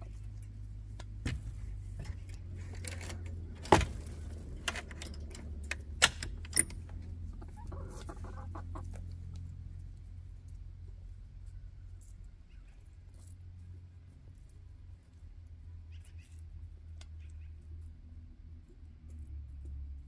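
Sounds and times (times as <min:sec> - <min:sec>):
hens clucking: 0:05.4 - 0:10.6.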